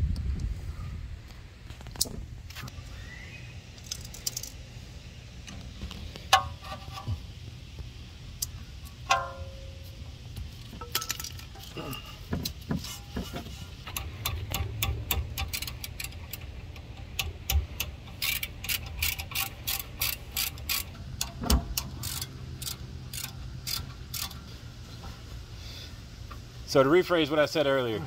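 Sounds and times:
socket ratchet clicking: 13.9s - 24.4s.

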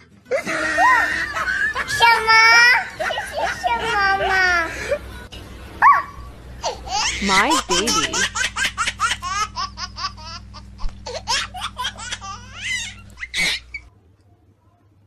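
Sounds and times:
steady low hum: 0.0s - 13.9s
person laughing hard: 0.3s - 5.1s, 7.2s - 8.5s.

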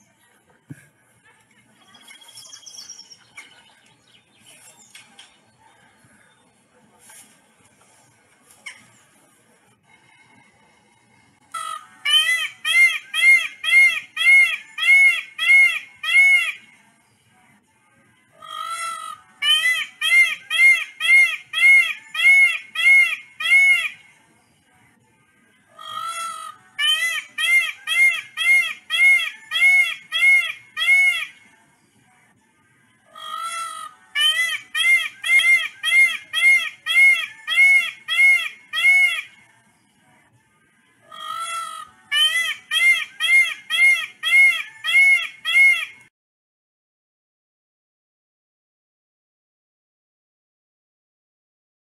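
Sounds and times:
peacock calling: 11.5s - 16.7s, 18.4s - 24.0s, 25.7s - 31.4s, 33.1s - 39.4s, 41.0s - 46.0s.

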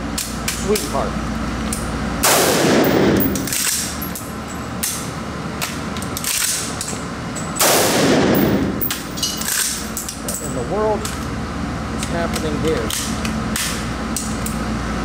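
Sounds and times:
rifle shots indoors: 2.2s - 4.2s, 7.6s - 9.8s.

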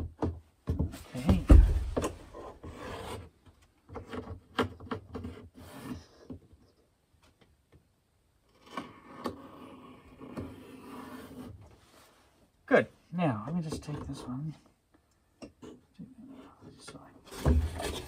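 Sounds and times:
tool scratching on wood: 2.3s - 3.3s, 8.6s - 11.6s.

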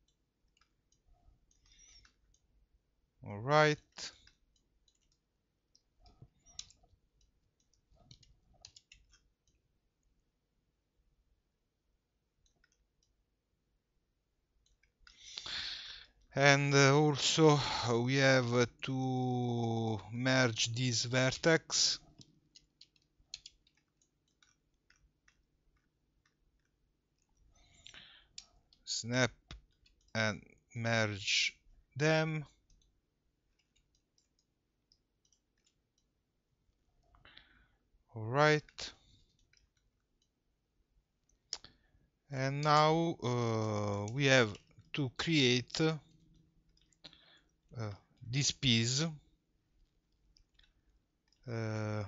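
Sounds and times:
computer mouse and keyboard clicks: 4.1s - 10.2s, 22.0s - 30.6s
mouse and keyboard clicks: 22.0s - 28.8s.

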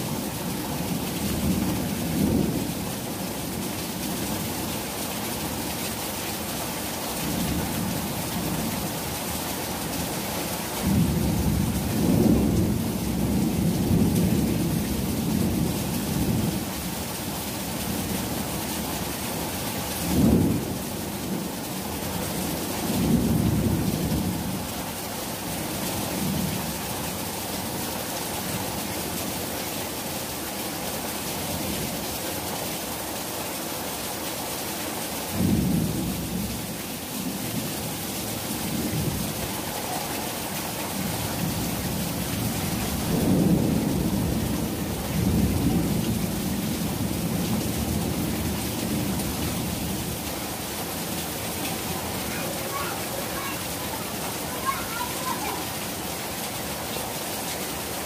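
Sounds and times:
heavy rain on pavement: 0.0s - 58.0s
thunder rumbling: 38.6s - 49.9s.

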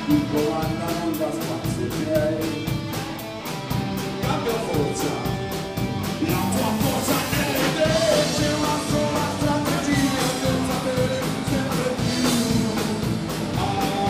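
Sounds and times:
person singing: 0.0s - 3.0s, 6.1s - 14.0s
bass guitar: 0.0s - 14.0s
drum kit beat: 0.0s - 14.0s
electric guitars: 0.0s - 14.0s.

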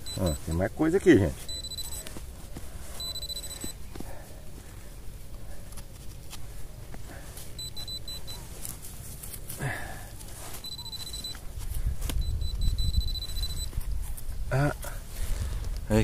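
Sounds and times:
high-pitched electronic beeping: 0.0s - 0.7s, 1.3s - 2.1s, 3.0s - 3.8s, 7.6s - 8.5s, 10.6s - 11.5s, 12.2s - 13.8s
digging in soil: 0.0s - 16.0s.

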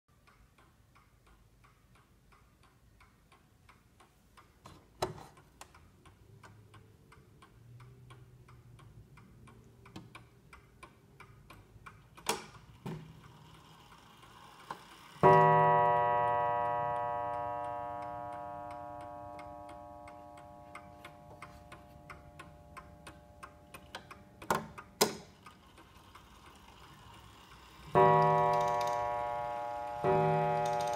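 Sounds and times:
clock hands clicking: 0.1s - 30.9s
clock ticking: 0.1s - 30.9s
clock striking: 13.0s - 30.9s.

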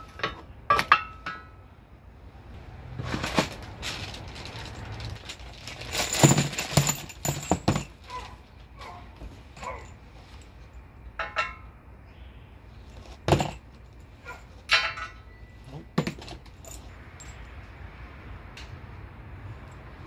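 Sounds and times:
steel hardware clinking and rattling: 0.0s - 1.7s, 3.1s - 11.8s, 13.0s - 17.6s
metallic knocks: 11.1s - 11.8s.

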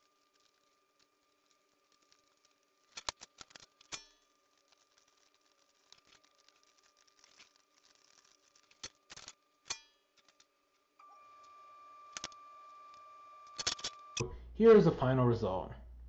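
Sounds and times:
small clicks and knocks: 0.3s - 10.6s.

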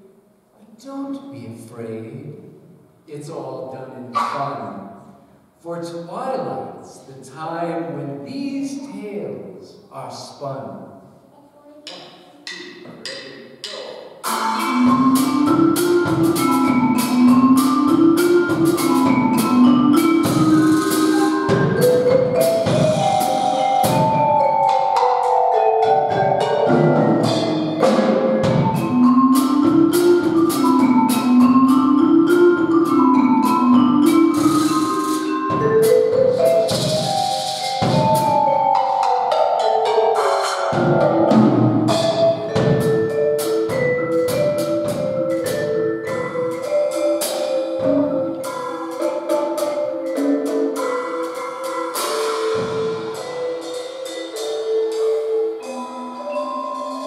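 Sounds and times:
mallet percussion melody: 11.8s - 57.0s
drum kit: 11.9s - 55.7s.

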